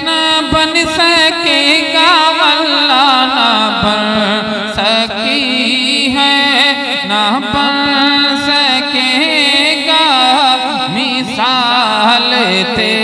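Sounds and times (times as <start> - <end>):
man singing devotional song: 0.0 - 13.0.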